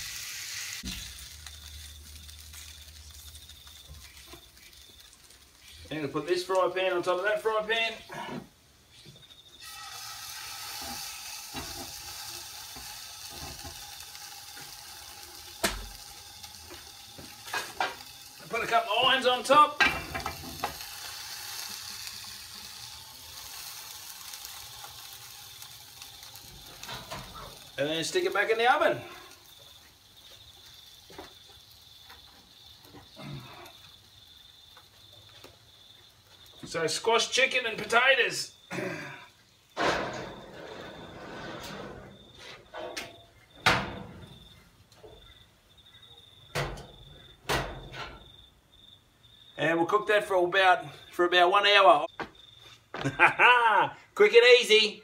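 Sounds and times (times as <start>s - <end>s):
butter and water sizzling in pan: 0.0s - 7.3s, 9.4s - 38.7s.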